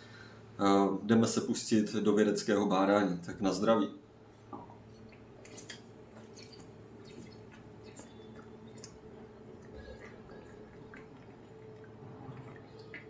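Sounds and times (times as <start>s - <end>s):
faint steady hum: 0.0s - 13.0s
gulping beer from a bottle: 6.3s - 13.0s.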